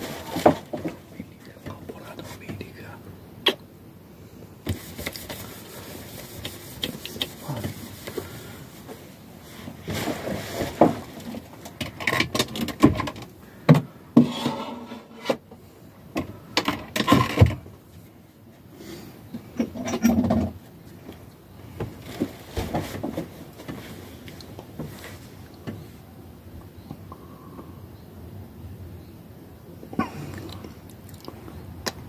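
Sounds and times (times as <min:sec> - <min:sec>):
rustling and clatter: 0:00.0 - 0:02.8, 0:04.6 - 0:15.6, 0:16.2 - 0:18.2, 0:19.4 - 0:26.0.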